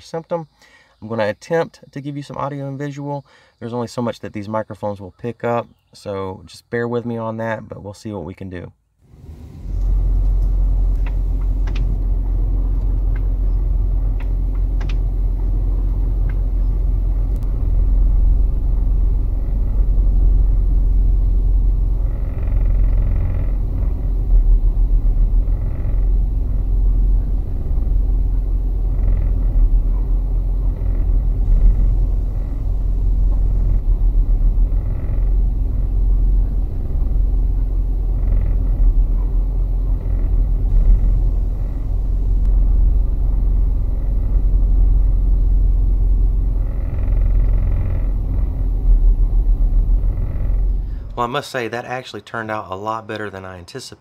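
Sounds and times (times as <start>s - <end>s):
pickup truck rumble: 9.0s - 52.0s
buzzing rattles: 9.0s - 52.6s.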